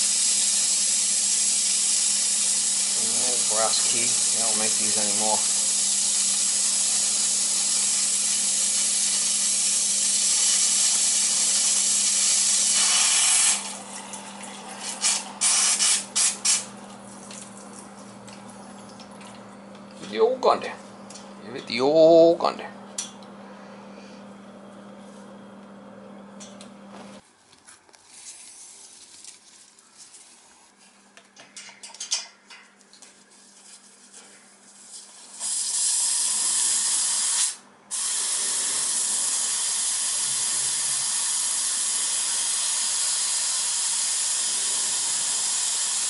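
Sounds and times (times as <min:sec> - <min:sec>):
air hissing from radiator valve: 0:00.0 - 0:13.9, 0:14.8 - 0:16.7, 0:34.7 - 0:46.0.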